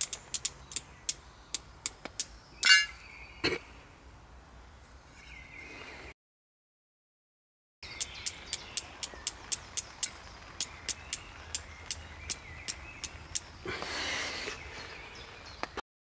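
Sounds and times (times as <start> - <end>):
rapid sharp high clicks: 0.0 - 2.3, 7.9 - 13.6.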